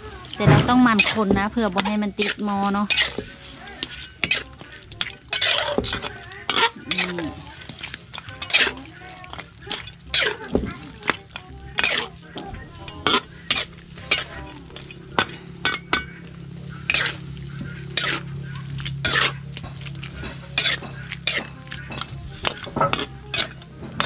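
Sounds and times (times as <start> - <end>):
metal spatula scraping a wok: 0.0 - 24.0.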